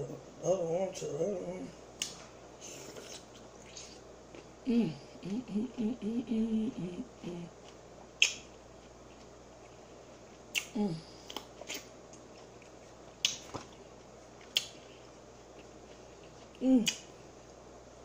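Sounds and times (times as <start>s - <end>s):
person humming: 0.0s - 1.8s, 4.6s - 7.6s, 10.6s - 11.2s, 16.6s - 17.0s
crisp biting clicks: 7.7s - 8.5s.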